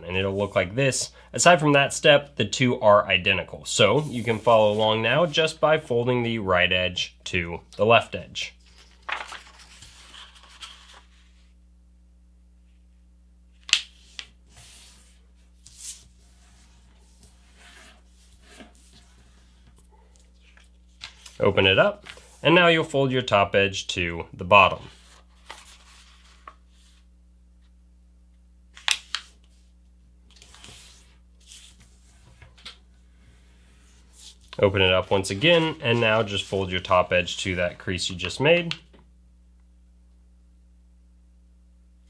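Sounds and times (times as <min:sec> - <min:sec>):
paper rustling: 0:03.9 - 0:05.3, 0:08.6 - 0:11.5, 0:13.6 - 0:22.4, 0:24.8 - 0:27.1, 0:30.3 - 0:38.3
paper swipe: 0:04.0 - 0:04.8
paper crackling: 0:08.6 - 0:11.2, 0:24.9 - 0:27.0.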